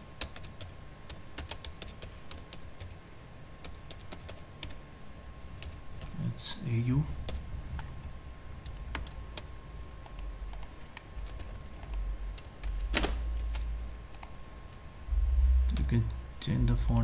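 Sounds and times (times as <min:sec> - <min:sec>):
low background rumble: 0:03.9 - 0:17.0
keyboard and mouse clicks: 0:08.6 - 0:14.4.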